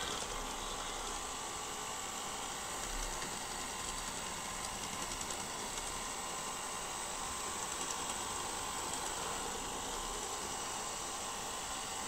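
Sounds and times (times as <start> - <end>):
robot vacuum motors whirring: 0.0 - 6.2.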